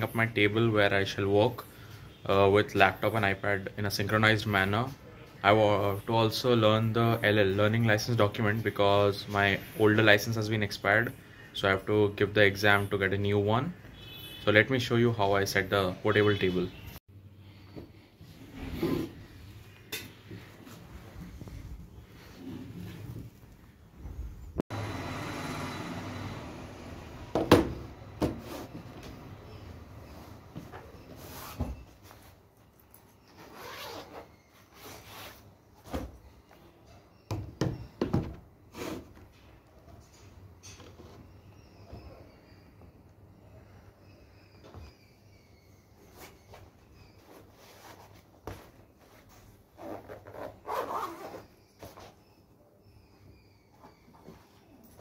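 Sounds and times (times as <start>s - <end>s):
zipper pulled open: 33.4s - 35.4s, 49.8s - 51.5s.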